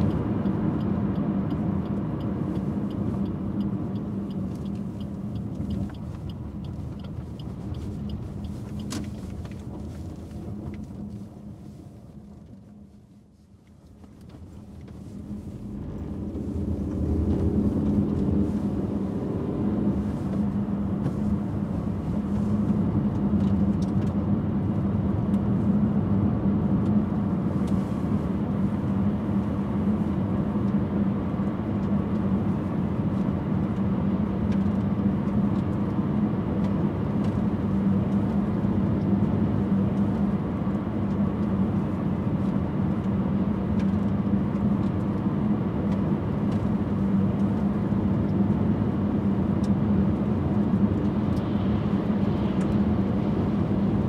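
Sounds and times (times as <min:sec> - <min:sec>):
car tyre and road noise: 0:00.0 - 0:54.0
low hum: 0:10.5 - 0:22.8.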